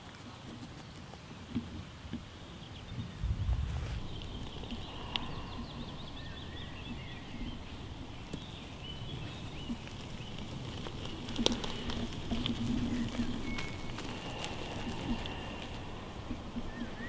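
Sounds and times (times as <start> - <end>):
birds chirping: 2.1 - 17.0
dog footsteps rustling: 7.3 - 17.0.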